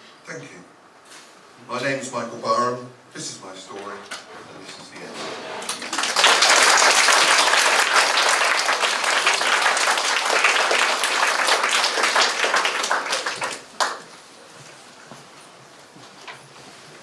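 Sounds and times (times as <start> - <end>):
audience applauding: 5.6 - 14.2.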